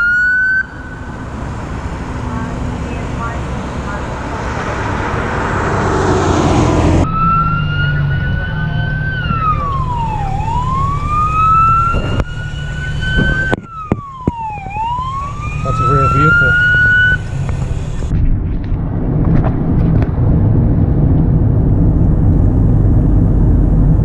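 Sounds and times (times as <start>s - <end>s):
emergency vehicle siren wailing: 0.0s - 18.1s
low engine hum: 0.0s - 24.0s
road traffic noise: 0.0s - 24.0s.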